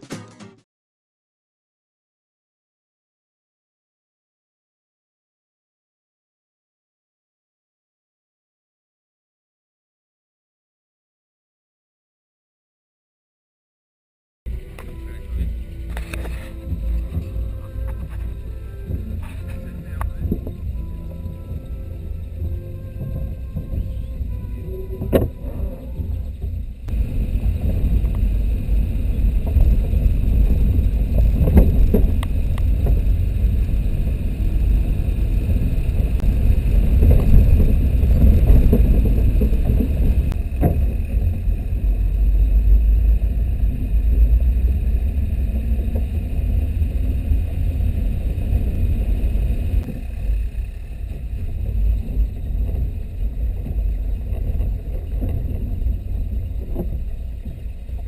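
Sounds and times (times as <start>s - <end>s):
engine and road rumble: 14.5s - 58.0s.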